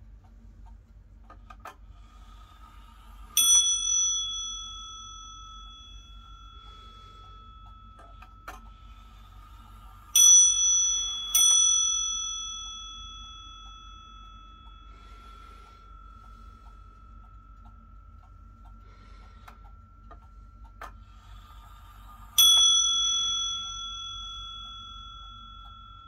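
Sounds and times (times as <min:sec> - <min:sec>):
clock bell striking: 0:03.4 - 0:18.1, 0:22.4 - 0:26.0.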